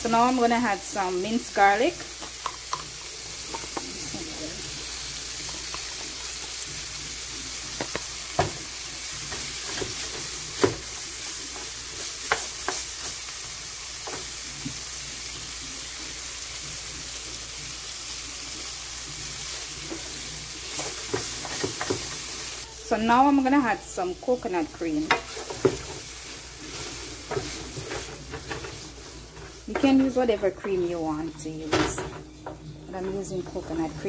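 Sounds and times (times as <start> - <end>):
vegetables sizzling in a frying pan: 0.0 - 34.0
wooden spoon scraping a pan: 24.0 - 32.2, 32.9 - 34.0.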